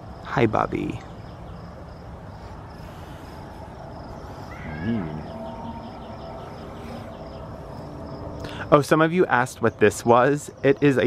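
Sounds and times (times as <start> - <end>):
crickets chirping: 0.0 - 11.0
dog groaning: 4.5 - 6.2.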